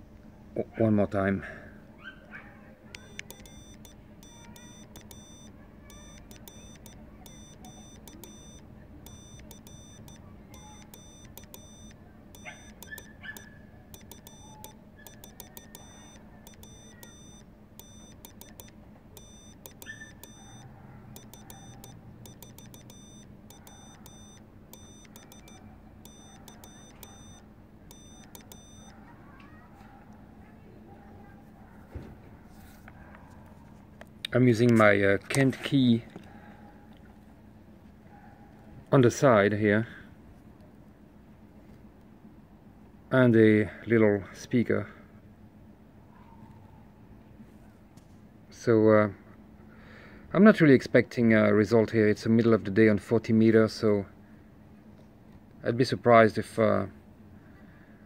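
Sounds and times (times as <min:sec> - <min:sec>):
morse key clicks: 0:03.0 - 0:20.6, 0:21.2 - 0:29.0
morse code beeps: 0:03.0 - 0:29.0.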